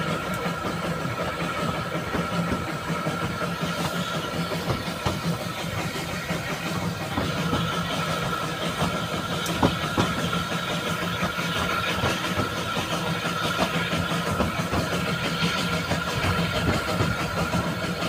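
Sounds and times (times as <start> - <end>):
train wheels running on track: 0.0 - 18.0
scattered knocks: 9.5 - 10.3.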